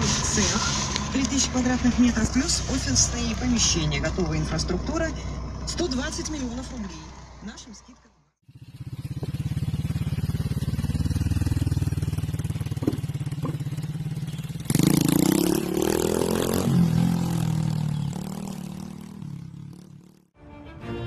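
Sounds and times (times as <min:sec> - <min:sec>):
motorcycle over wooden plank bridge: 0:08.4 - 0:20.3
small motorcycle engine running: 0:08.4 - 0:20.3.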